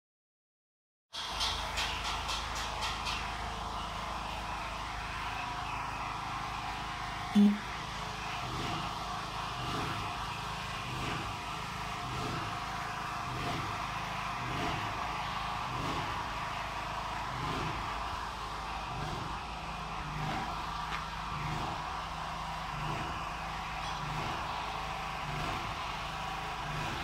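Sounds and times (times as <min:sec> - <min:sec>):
machinery hum: 0:03.5 - 0:27.0
loud low tone: 0:07.4 - 0:07.6.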